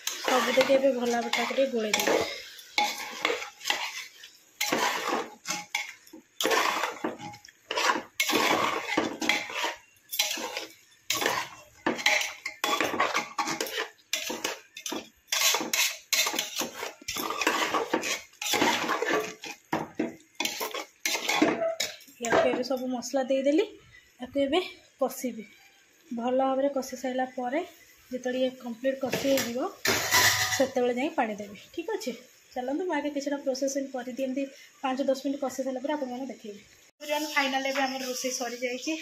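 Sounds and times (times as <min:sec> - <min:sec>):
ladle scraping a pot: 0:00.0 - 0:22.0, 0:29.9 - 0:30.8.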